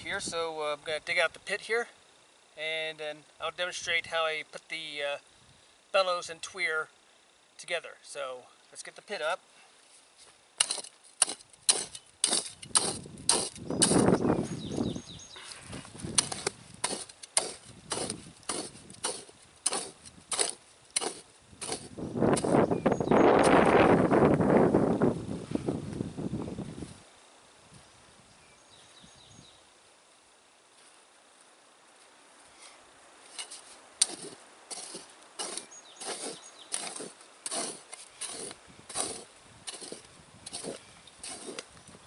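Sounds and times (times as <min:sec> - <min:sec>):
shovel chopping into sandy dirt: 0:10.6 - 0:14.2, 0:16.0 - 0:22.7, 0:33.3 - 0:41.7.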